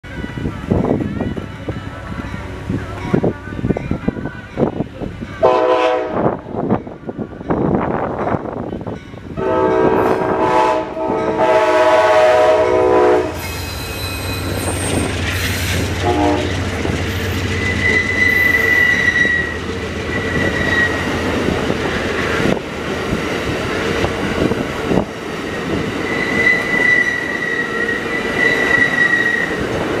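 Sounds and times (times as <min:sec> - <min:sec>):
train chime horn: 0:00.2 - 0:06.7, 0:09.3 - 0:14.8, 0:16.0 - 0:16.7
high wheel squeal: 0:13.4 - 0:21.2, 0:26.0 - 0:29.8
train wheels clattering on rails: 0:13.4 - 0:30.0.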